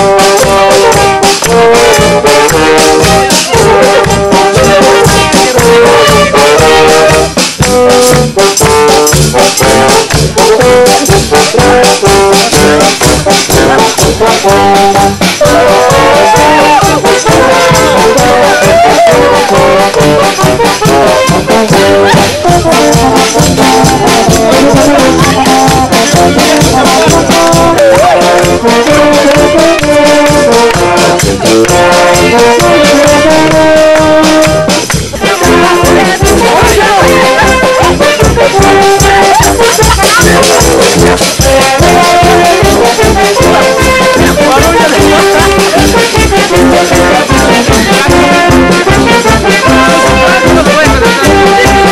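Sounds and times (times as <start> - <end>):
brass band with drums: 0.0 - 51.9.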